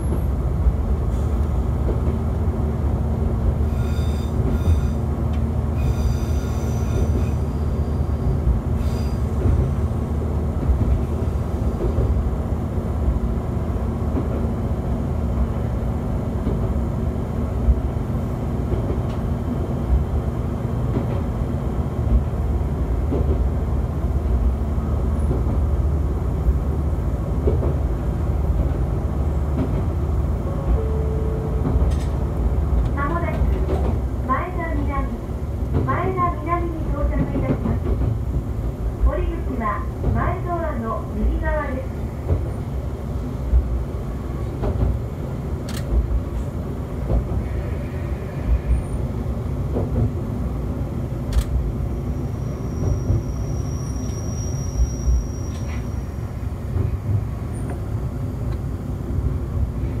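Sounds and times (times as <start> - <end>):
railcar engine and wheels rumbling: 0.0 - 60.0
high wheel squeals: 3.7 - 5.0, 5.8 - 9.3, 52.2 - 56.2.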